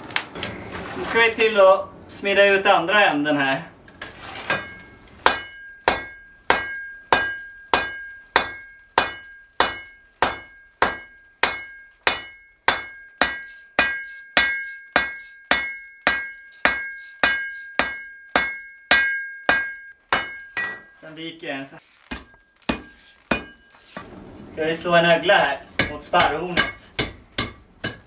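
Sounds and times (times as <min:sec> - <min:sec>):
hammer striking iron on anvil: 0:04.5 - 0:21.0, 0:22.1 - 0:23.8, 0:25.4 - 0:28.0.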